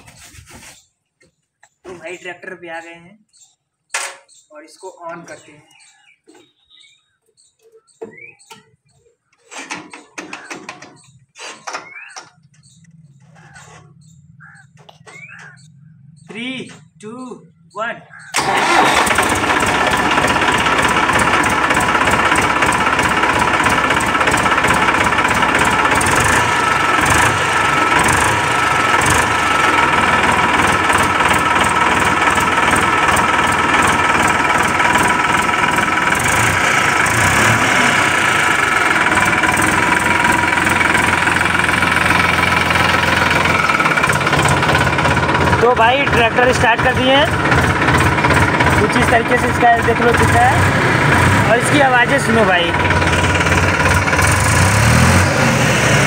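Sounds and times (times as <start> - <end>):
tractor diesel engine idling: 18.3 - 56.0.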